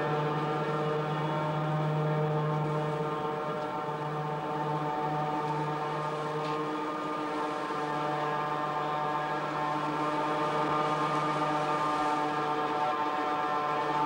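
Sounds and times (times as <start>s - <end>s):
crane hoist droning hum: 0.0s - 14.0s.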